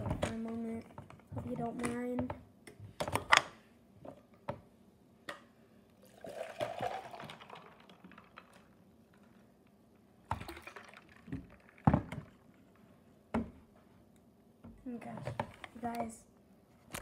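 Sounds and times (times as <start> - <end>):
liquid pouring into cup: 6.0 - 8.7, 10.3 - 12.4.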